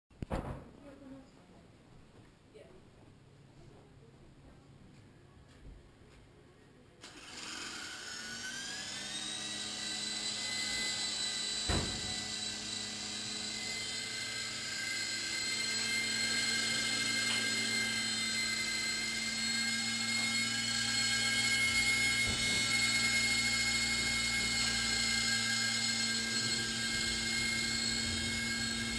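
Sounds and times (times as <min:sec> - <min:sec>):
rotor hum: 0:07.0 - 0:28.9
toy helicopter motor whine: 0:07.0 - 0:28.9.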